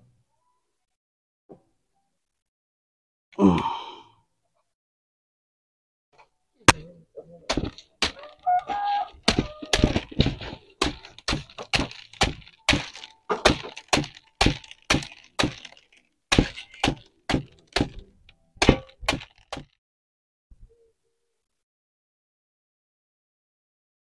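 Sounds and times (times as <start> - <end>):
sprigs slapping a bamboo basket: 7.5 - 18.0, 18.6 - 19.8.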